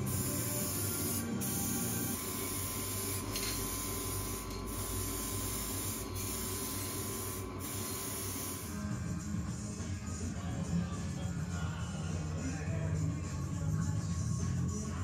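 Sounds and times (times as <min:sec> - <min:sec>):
aerosol spray can hissing: 0:00.0 - 0:08.8.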